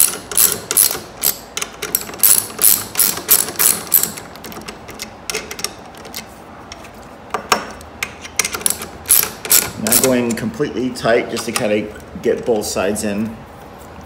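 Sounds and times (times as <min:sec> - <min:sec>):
socket ratchet clicking: 0:00.0 - 0:06.2, 0:08.4 - 0:10.2.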